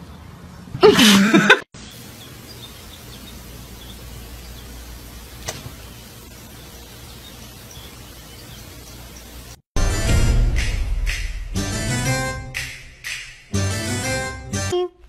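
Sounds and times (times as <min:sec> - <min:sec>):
steady hiss: 0:01.8 - 0:09.7.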